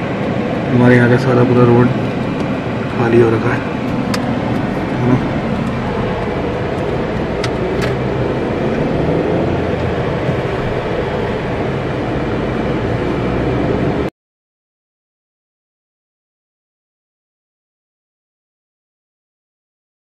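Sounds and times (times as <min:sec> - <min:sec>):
car engine and tyre rumble: 0:00.0 - 0:14.1.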